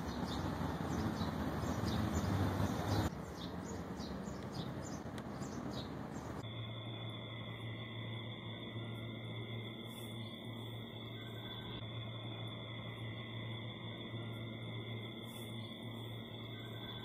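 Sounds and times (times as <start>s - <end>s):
small birds chirping: 0.0s - 6.4s
humming drone of held tones: 3.6s - 17.0s.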